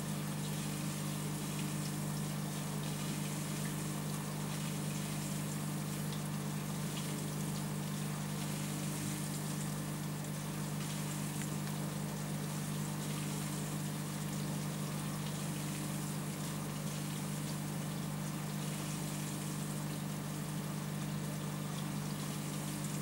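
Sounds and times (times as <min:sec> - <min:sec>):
aquarium pump humming: 0:00.0 - 0:23.0
small ticks: 0:10.8 - 0:11.8.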